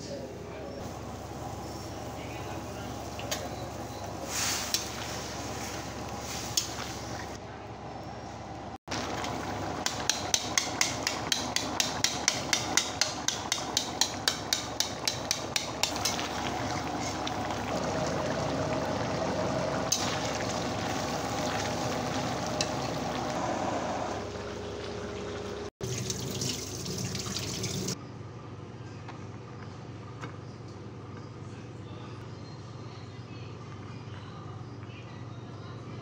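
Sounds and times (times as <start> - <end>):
curry sizzling: 0.8 - 7.4, 8.9 - 28.0.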